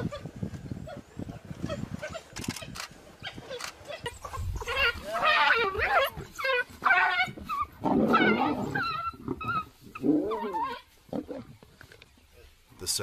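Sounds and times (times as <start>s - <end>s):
animal cries: 2.0s - 10.9s.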